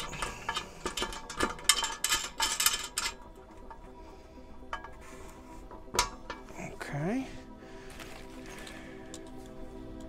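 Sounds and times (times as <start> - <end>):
metallic clicks and clinks: 0.0 - 3.9.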